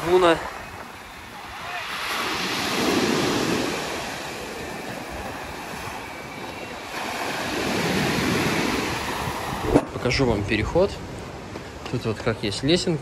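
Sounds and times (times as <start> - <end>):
waves breaking on pebble beach: 0.0 - 10.2.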